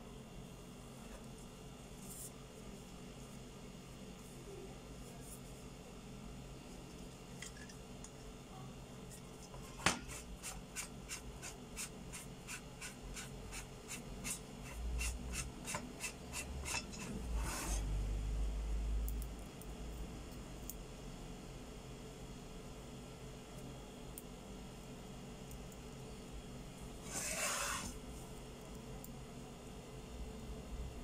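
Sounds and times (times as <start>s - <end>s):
metal rubbing: 10.1s - 17.9s, 27.0s - 28.0s.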